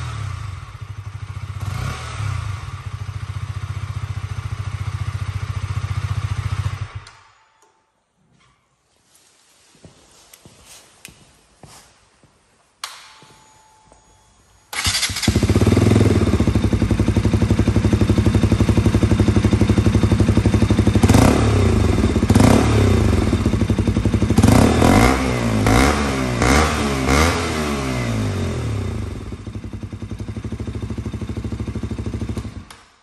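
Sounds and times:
motorcycle engine idling and revving: 0:00.0 - 0:07.2, 0:14.8 - 0:32.8.

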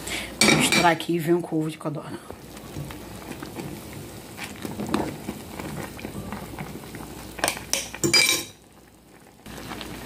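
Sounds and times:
broth boiling in a pot: 0:00.0 - 0:10.0
metal clinks on a pot: 0:07.4 - 0:08.6.

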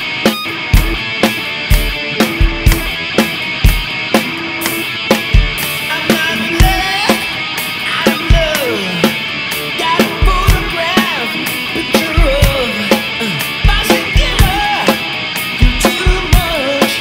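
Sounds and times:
snare and cymbal hits: 0:00.0 - 0:05.8
electric guitar lead line: 0:00.0 - 0:17.0.

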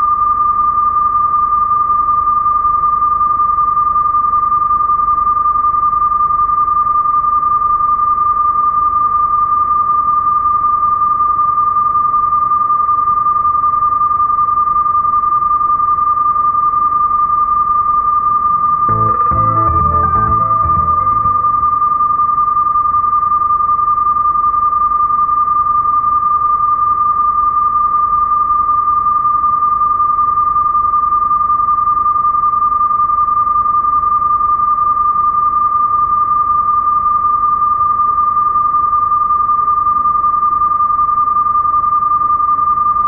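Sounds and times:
steady test tone: 0:18.9 - 0:22.4.

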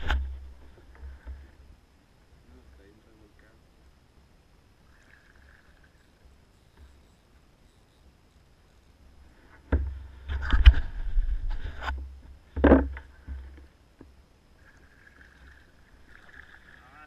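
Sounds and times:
rumbling scrapes: 0:09.9 - 0:13.6.

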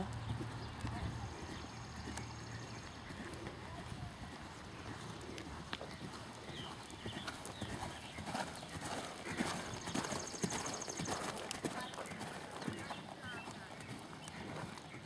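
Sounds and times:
horse hoofbeats on soft dirt: 0:00.0 - 0:15.0.

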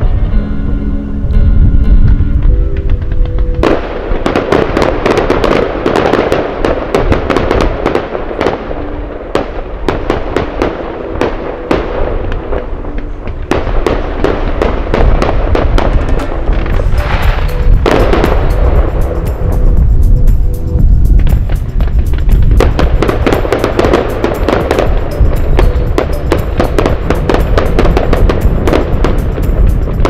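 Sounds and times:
fireworks bangs and crackling: 0:02.4 - 0:30.0
hiss of bursting fireworks: 0:03.6 - 0:30.0.

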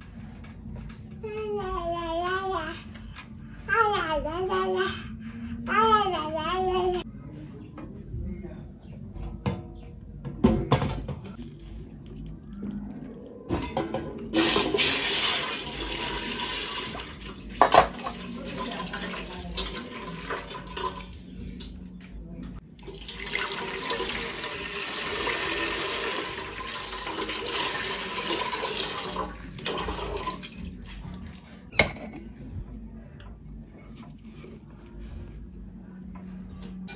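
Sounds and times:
water pouring into metal pot: 0:14.3 - 0:21.2, 0:22.8 - 0:30.7.

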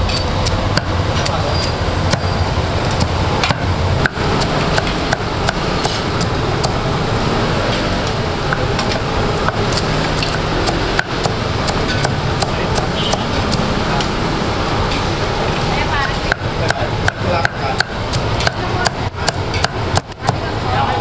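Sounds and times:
knife chopping on wooden block: 0:16.3 - 0:20.4.

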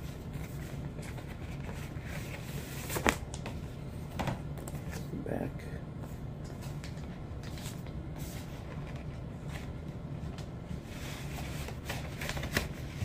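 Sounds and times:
plastic sleeve rustling: 0:10.4 - 0:13.0.

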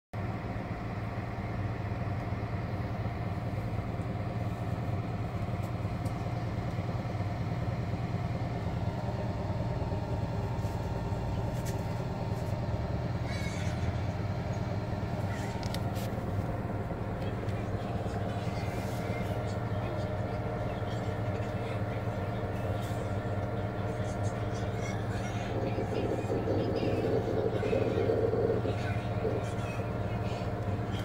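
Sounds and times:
washing machine drum humming: 0:24.4 - 0:30.1.

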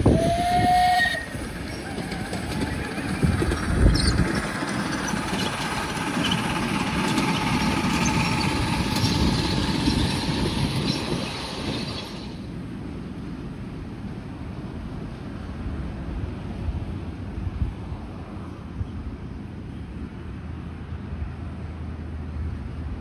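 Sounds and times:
steam locomotive whistle toot: 0:00.0 - 0:02.4
train cars clattering on rails: 0:00.0 - 0:12.5.

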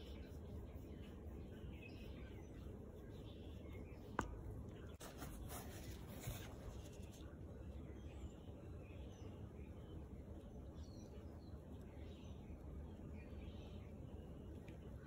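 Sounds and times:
brush rubbing on leather: 0:05.0 - 0:07.2.

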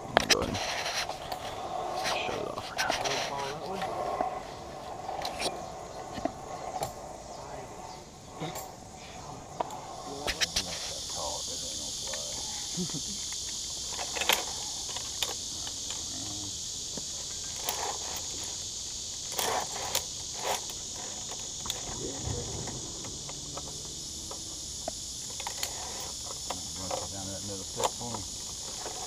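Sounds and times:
high-pitched insect chorus: 0:00.0 - 0:29.0
harness gear clicking: 0:19.2 - 0:29.0.

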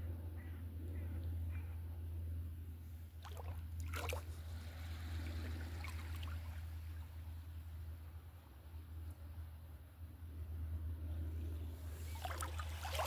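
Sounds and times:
small waves lapping: 0:03.0 - 0:08.5, 0:11.7 - 0:13.0
water splashes: 0:03.2 - 0:07.4, 0:12.0 - 0:13.0.

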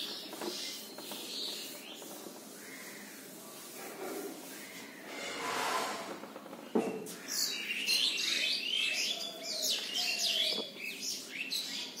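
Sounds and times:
small birds chirping: 0:00.0 - 0:03.8, 0:06.6 - 0:12.0.

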